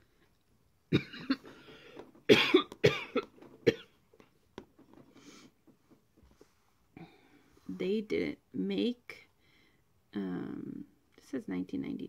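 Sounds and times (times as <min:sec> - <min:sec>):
person coughing: 0:00.9 - 0:01.6, 0:02.3 - 0:03.9.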